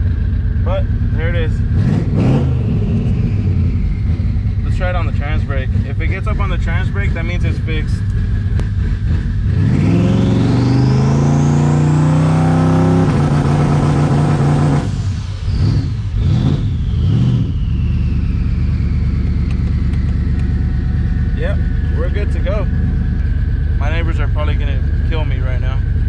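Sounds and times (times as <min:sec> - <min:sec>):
car engine accelerating: 0:00.0 - 0:26.0
turbo whistle: 0:14.8 - 0:20.0.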